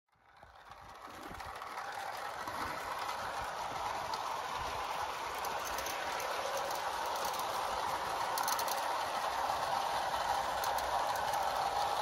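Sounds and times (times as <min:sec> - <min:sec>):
toy train rolling on track: 0:00.1 - 0:12.0.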